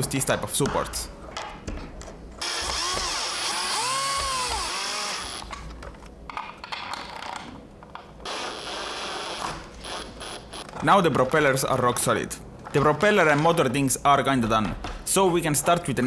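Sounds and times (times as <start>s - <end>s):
electric screwdriver motor whine: 2.4s - 5.5s, 8.3s - 10.6s.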